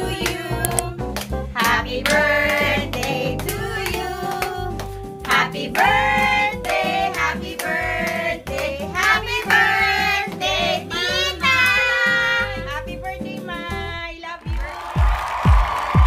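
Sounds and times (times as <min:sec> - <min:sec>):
person singing over backing track: 0:00.0 - 0:14.0
hands clapping: 0:00.2 - 0:10.7, 0:14.4 - 0:16.0.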